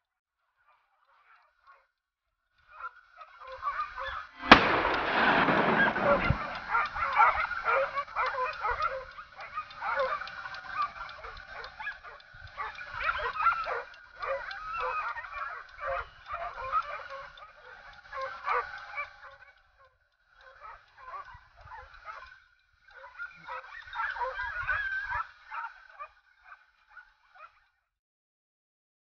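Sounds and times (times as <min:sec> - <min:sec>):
dogs yelping and baying: 0:02.7 - 0:27.7
echoing gunshot: 0:04.4 - 0:06.8.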